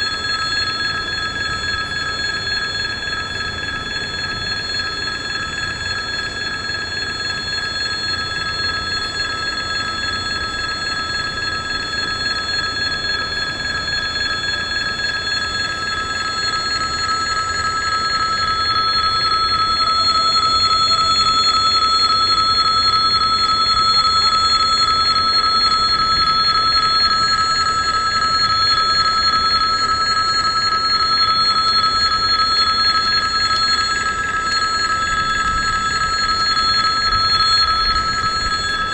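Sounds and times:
electric warning bell ringing: 0:14.7 - 0:38.9.

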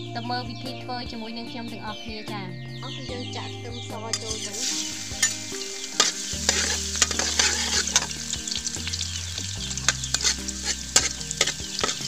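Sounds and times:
garlic sizzling in hot oil: 0:04.1 - 0:12.0
metal spatula scraping wok: 0:04.1 - 0:12.0.

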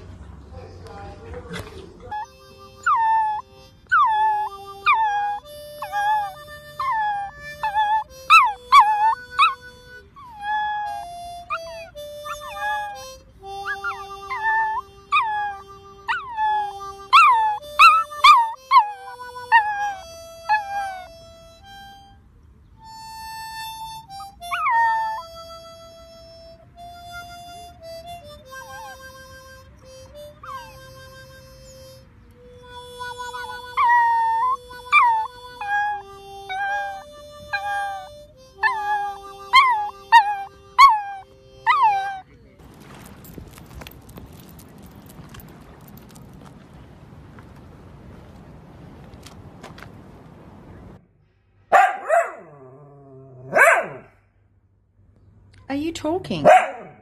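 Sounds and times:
held musical notes: 0:02.0 - 0:51.6
dog howling: 0:02.2 - 0:09.6, 0:10.2 - 0:21.1, 0:24.4 - 0:25.4, 0:33.3 - 0:42.2.

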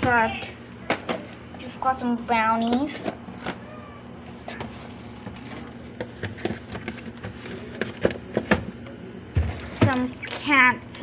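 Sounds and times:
fridge hum: 0:00.0 - 0:11.0
food containers clicking and knocking: 0:04.5 - 0:10.2.

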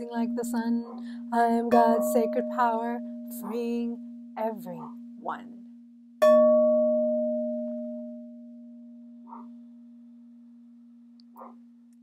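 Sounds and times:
singing bowl ringing: 0:00.0 - 0:04.4, 0:06.2 - 0:10.6.

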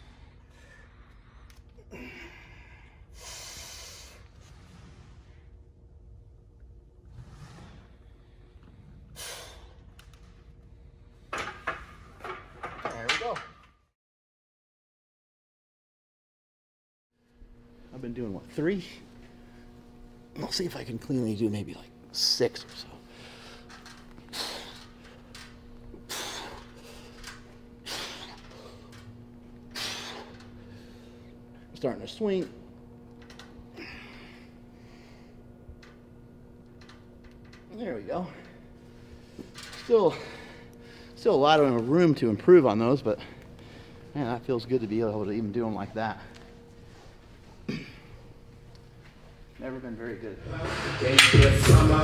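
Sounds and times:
sharp hissing breaths: 0:00.0 - 0:04.3, 0:23.1 - 0:25.2, 0:26.0 - 0:28.9, 0:29.7 - 0:31.2
faint steady hum: 0:00.0 - 0:13.8, 0:17.2 - 0:52.0.

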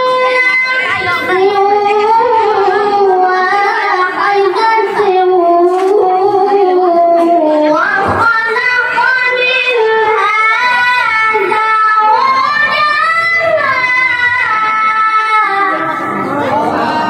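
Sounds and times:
boy reciting melodically into microphone: 0:00.0 - 0:17.0.

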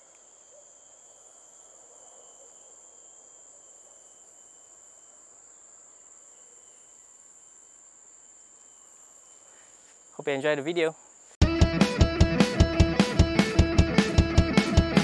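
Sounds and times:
insect chorus drone: 0:00.0 - 0:11.4.

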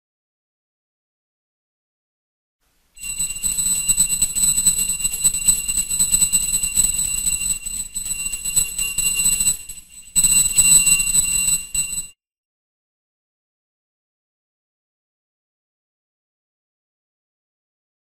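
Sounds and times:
brass hand bell ringing: 0:03.0 - 0:12.1.

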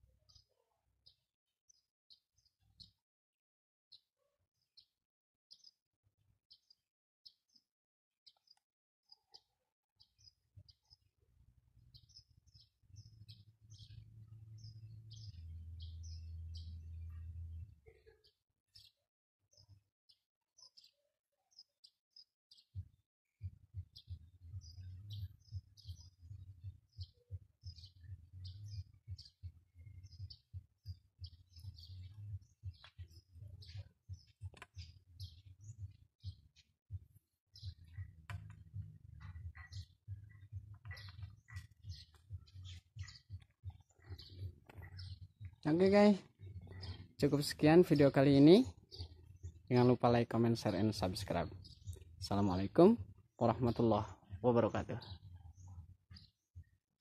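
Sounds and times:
small birds chirping: 0:00.0 - 0:03.0, 0:03.9 - 0:57.0.

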